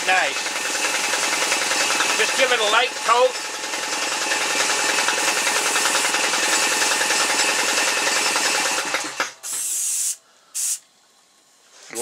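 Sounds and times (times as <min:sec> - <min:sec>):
aerosol spray can spraying: 0:05.0 - 0:07.0, 0:09.4 - 0:10.8
short high spray hisses: 0:09.4 - 0:10.8.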